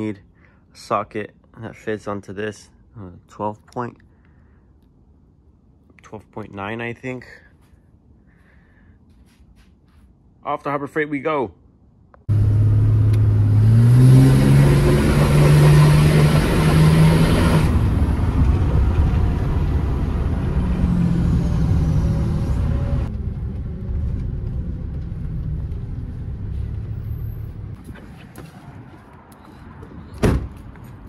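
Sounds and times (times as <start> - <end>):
truck engine accelerating: 12.3 - 27.8.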